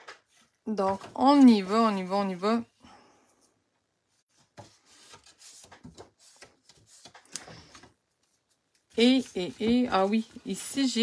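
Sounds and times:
cardstock rustling and scraping: 4.2s - 11.0s.

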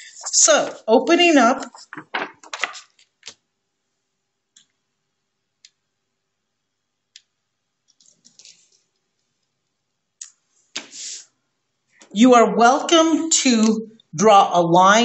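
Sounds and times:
paper crinkling: 0.0s - 3.4s.

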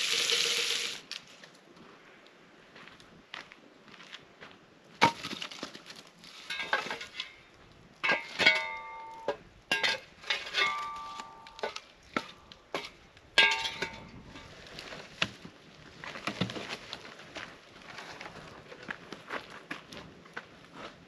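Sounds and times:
metal tool clanking and scraping: 6.4s - 7.4s, 8.0s - 14.5s.

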